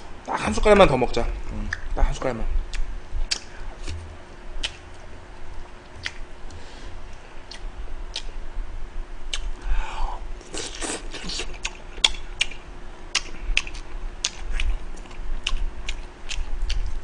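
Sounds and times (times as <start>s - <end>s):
person chewing food: 2.7s - 8.4s, 9.3s - 17.0s.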